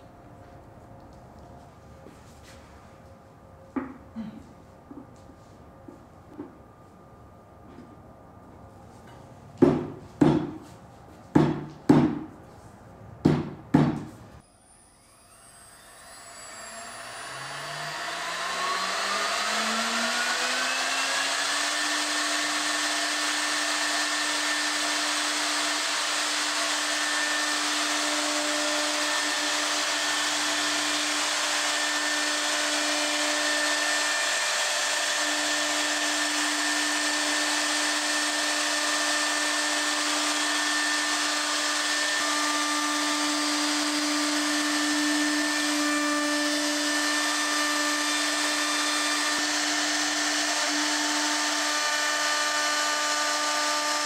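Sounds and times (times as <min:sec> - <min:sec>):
router spindle whining: 0:14.4 - 0:54.0.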